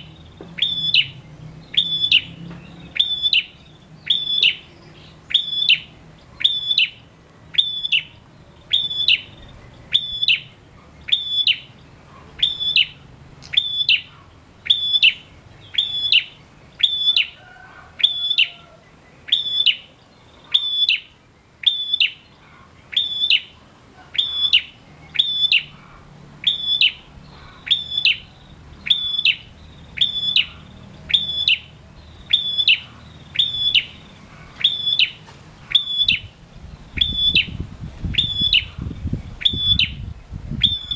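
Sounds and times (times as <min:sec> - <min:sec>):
bird chirping calls: 0:00.0 - 0:40.9.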